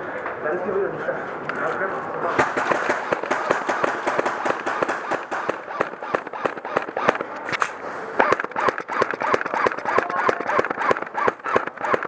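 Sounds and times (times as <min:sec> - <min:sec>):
pellets smacking wooden walls: 0:02.4 - 0:07.3, 0:08.2 - 0:12.0
airsoft guns firing: 0:02.4 - 0:12.0
distant shouting voices: 0:08.1 - 0:12.0.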